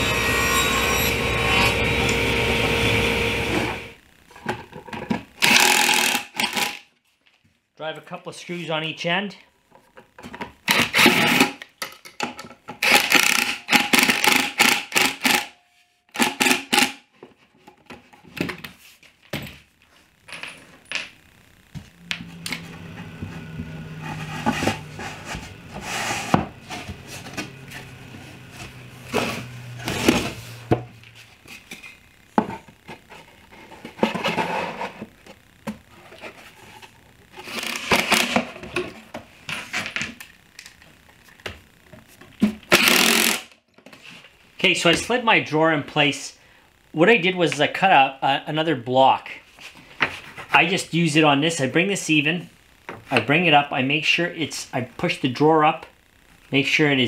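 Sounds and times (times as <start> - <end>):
impact driver driving screws: 5.4 - 6.8, 12.8 - 15.5, 42.7 - 43.5.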